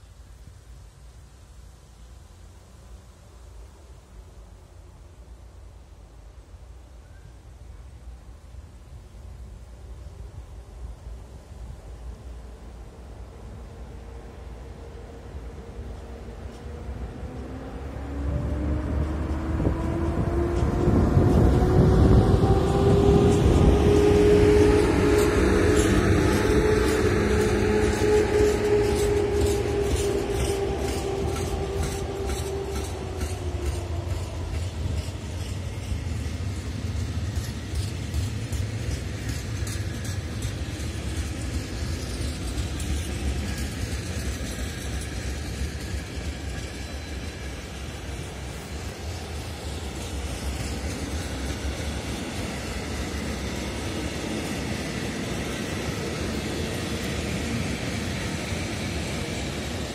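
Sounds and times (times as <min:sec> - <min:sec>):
train rumble: 0:00.0 - 0:59.9
wheels clicking over rail joints: 0:18.2 - 0:59.9.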